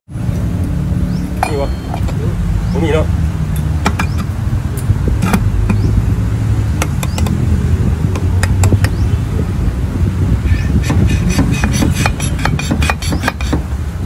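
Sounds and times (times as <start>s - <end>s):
sharp metal clicks and clinks: 1.4s - 2.3s.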